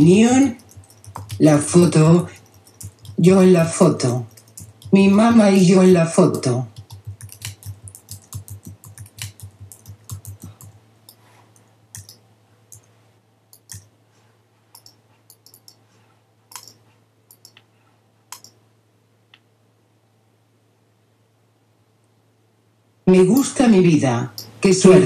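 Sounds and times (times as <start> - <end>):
computer keyboard typing: 0.0 - 12.9, 13.5 - 13.9, 14.8 - 15.8, 16.5 - 17.6, 18.3 - 18.6, 24.3 - 25.0.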